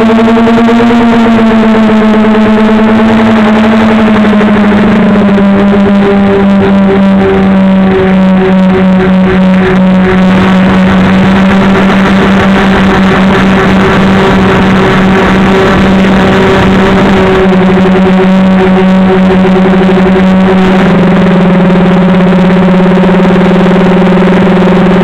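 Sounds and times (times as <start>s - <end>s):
model aircraft motors droning: 0.0s - 25.0s.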